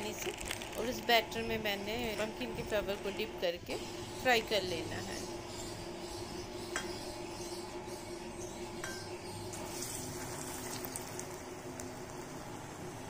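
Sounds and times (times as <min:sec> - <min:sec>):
hot oil sizzling: 0:09.5 - 0:13.0.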